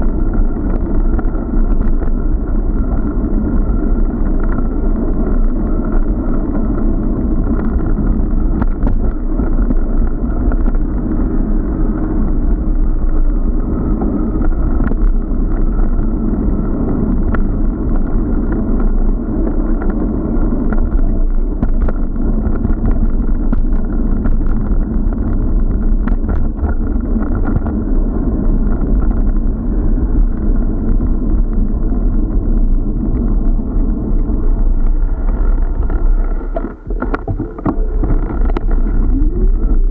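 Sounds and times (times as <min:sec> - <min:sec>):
tyres rumbling over paving: 0:00.0 - 0:39.9
wind rushing on microphone: 0:00.0 - 0:39.9
bike knocks and rattles: 0:16.8 - 0:39.9.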